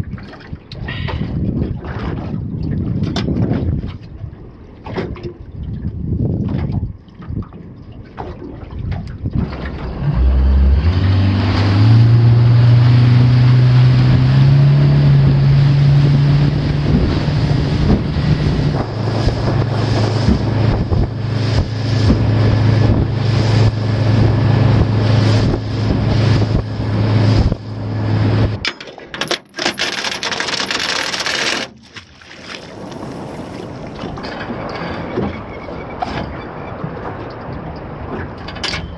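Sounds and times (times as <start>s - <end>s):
wind and water rush: 0.0s - 38.9s
water splashing: 4.8s - 29.0s, 29.6s - 38.4s
outboard motor running: 9.3s - 38.5s.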